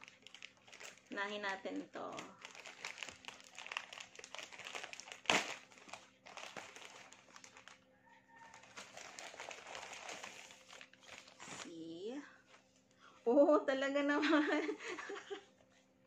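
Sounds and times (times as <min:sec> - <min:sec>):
plastic bag crinkling and tearing: 0:00.0 - 0:11.8.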